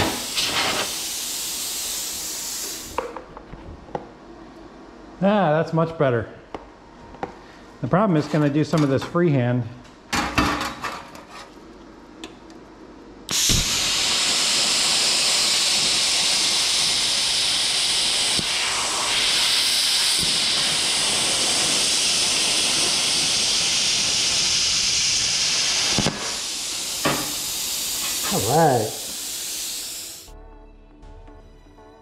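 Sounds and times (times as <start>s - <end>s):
plasma cutter hissing: 0.0s - 3.0s, 13.3s - 30.3s.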